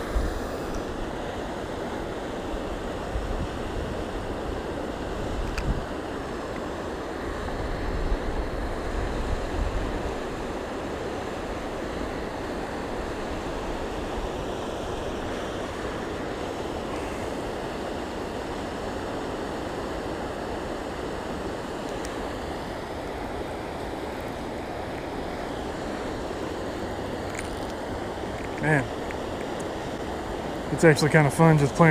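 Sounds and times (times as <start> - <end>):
river rushing: 0.0 - 31.9
wind buffeting microphone: 2.6 - 6.1, 7.3 - 10.5.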